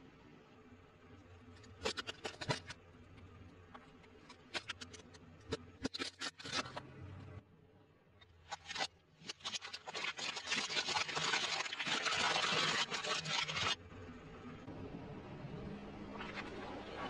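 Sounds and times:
plastic crunching and popping: 1.6s - 6.9s, 8.2s - 13.8s
tyre crushing plastic cups: 1.7s - 2.8s, 8.5s - 13.8s.

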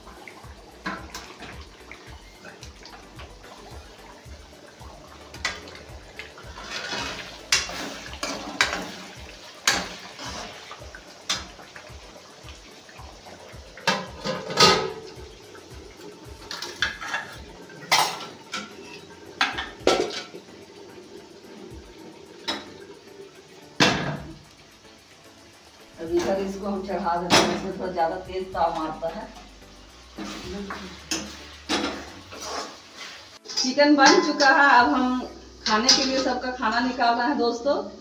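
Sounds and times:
metal pot lids clattering: 6.5s - 10.7s, 13.8s - 15.1s, 16.5s - 20.4s, 31.1s - 32.8s, 33.4s - 34.9s, 35.6s - 36.9s
spoon scraping in metal pot: 16.5s - 20.1s, 30.2s - 34.6s.

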